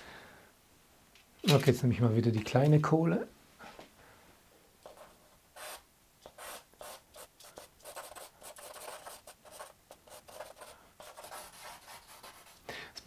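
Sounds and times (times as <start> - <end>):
charcoal scratching on paper: 4.9 - 12.6.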